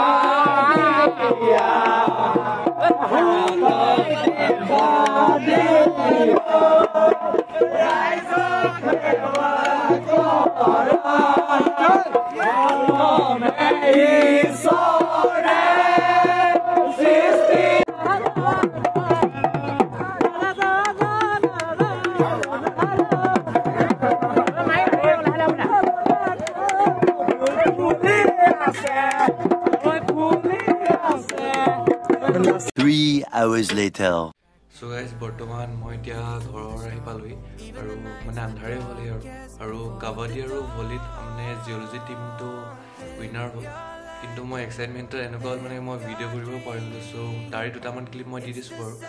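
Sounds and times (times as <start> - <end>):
young men chanting and cheering: 0.0 - 20.7, 23.6 - 33.7.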